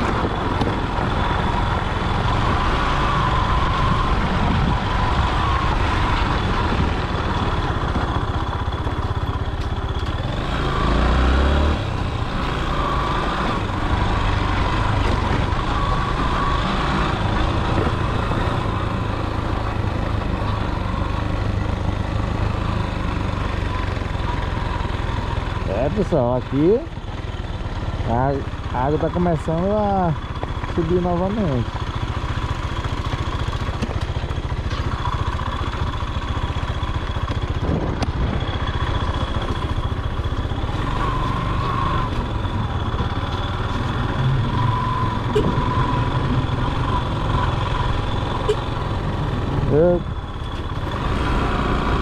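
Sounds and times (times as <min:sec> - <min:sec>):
motorcycle engine at low speed: 0:00.0 - 0:52.0
road rumble: 0:00.0 - 0:52.0.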